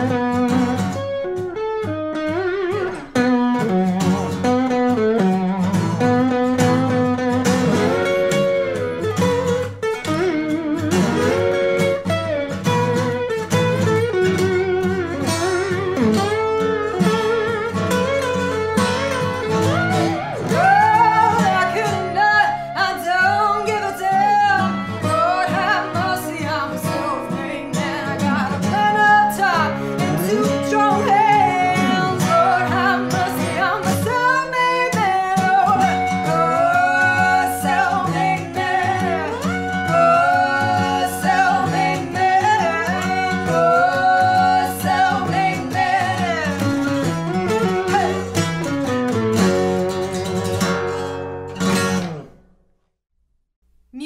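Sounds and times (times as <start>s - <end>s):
slide lap steel guitar: 0.0s - 52.4s
strummed acoustic guitar: 0.0s - 52.6s
woman singing: 19.7s - 48.4s.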